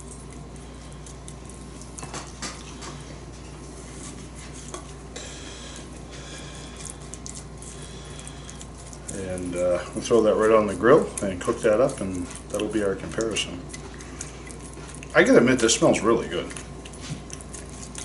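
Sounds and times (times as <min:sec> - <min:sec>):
steady low hum: 0:00.0 - 0:18.0
brush clicks taps and scrapes: 0:08.2 - 0:18.0.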